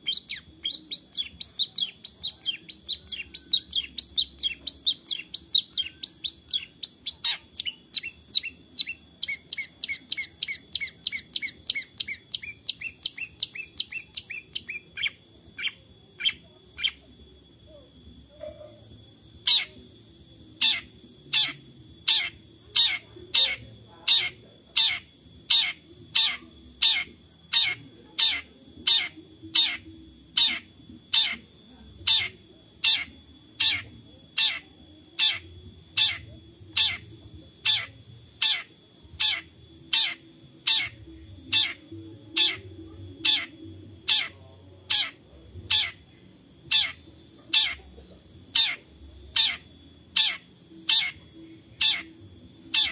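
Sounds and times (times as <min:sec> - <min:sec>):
bird harsh repeated call: 0:20.6 - 0:31.4, 0:32.1 - 0:37.0, 0:37.6 - 0:46.1, 0:46.7 - 0:47.8, 0:48.5 - 0:52.1.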